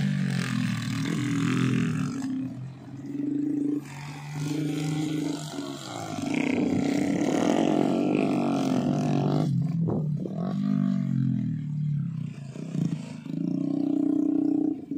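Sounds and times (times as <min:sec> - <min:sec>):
motorbike engines revving: 0:00.0 - 0:14.9.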